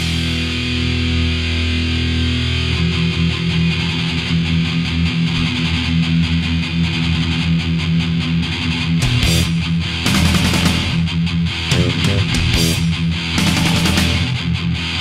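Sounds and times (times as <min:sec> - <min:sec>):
thrash metal band playing: 0:00.0 - 0:15.0.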